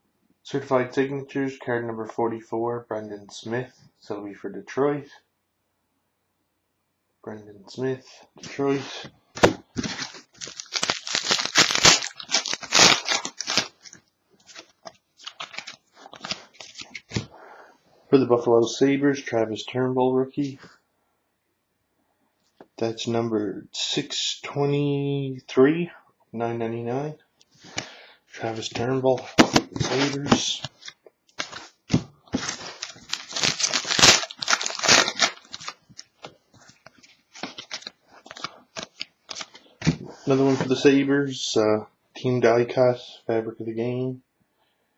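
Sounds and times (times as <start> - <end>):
plastic wrapper tearing and crinkling: 9.4 - 17.2, 29.4 - 39.6
cards rustling and clicking: 9.4 - 17.3, 29.2 - 40.8.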